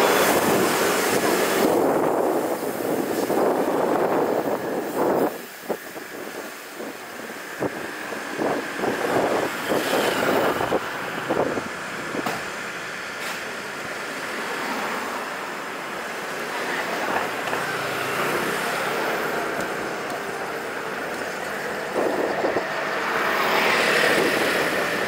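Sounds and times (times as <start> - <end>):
road and traffic noise: 0.0 - 25.0
wind buffeting microphone: 0.2 - 12.4, 21.1 - 22.9.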